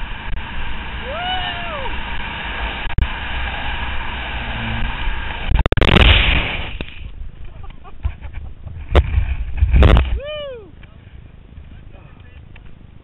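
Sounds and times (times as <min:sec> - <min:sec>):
wind rushing over camera: 0:00.0 - 0:13.0
skier crashing into snow: 0:05.5 - 0:07.0.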